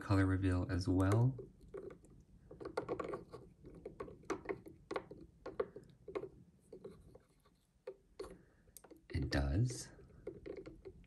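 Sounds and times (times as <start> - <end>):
plastic toy knocking in cup: 1.1 - 6.9.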